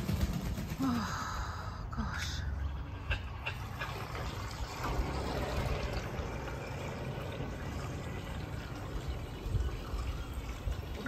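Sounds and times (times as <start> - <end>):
pool cleaner low rumble: 2.5 - 11.0
water jet splashing: 3.2 - 11.0.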